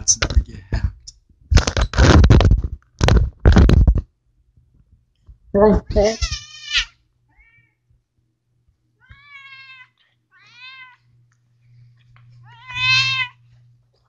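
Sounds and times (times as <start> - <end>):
cat meowing: 6.2 - 7.8, 9.0 - 11.1, 12.4 - 13.5.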